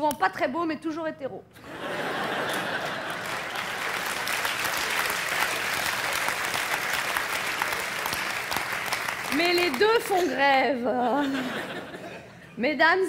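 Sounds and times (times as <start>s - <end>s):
audience applauding: 2.1s - 10.3s.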